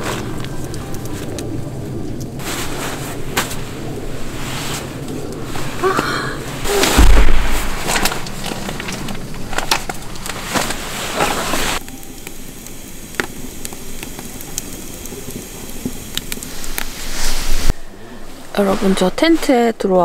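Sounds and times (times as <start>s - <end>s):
fire popping: 0.0s - 19.6s
wood stove fire crackling: 0.0s - 20.0s
tent fabric and bedding rustling: 2.4s - 8.8s, 9.8s - 11.8s, 16.9s - 17.7s, 18.3s - 20.0s.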